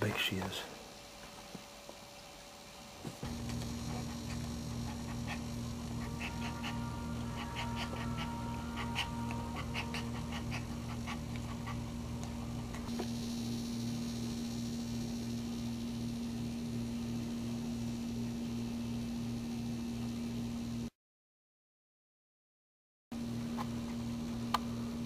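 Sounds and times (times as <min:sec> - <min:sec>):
steady low hum: 0:00.0 - 0:20.9, 0:23.2 - 0:25.0
small dog whimpering: 0:04.1 - 0:11.8.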